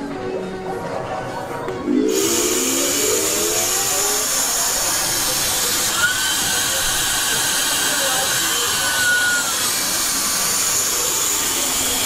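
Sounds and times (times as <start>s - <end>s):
high held tone: 1.8s - 9.9s
vending machine running: 1.8s - 12.0s.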